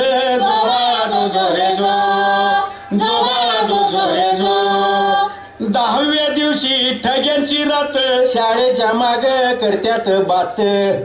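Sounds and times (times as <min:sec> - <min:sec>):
voices singing a cradle song: 0:00.3 - 0:05.3.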